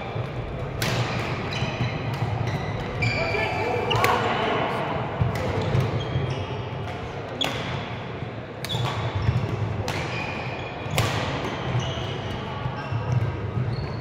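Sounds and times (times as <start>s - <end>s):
rackets hitting shuttlecock: 0.1s - 3.1s, 3.8s - 4.3s, 5.1s - 8.0s, 8.6s - 12.4s.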